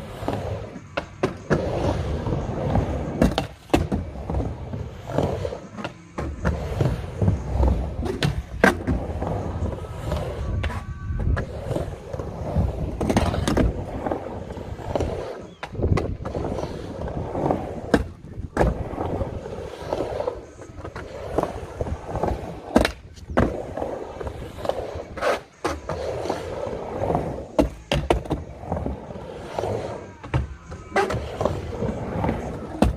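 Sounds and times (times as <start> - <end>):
skateboard wheels rolling on ramp: 0.0 - 32.9
skateboard clacks and knocks: 27.0 - 32.9.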